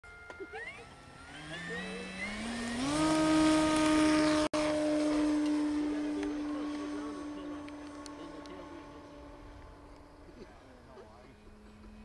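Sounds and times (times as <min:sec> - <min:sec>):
model airplane motor and propeller: 0:00.1 - 0:12.0.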